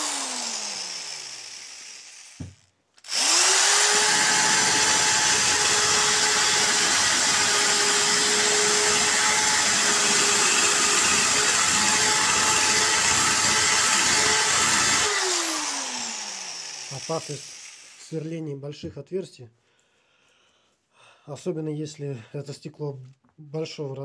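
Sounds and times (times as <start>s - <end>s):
drill motor winding down: 0.0s - 18.1s
electric drill grinding into glass: 0.0s - 18.1s.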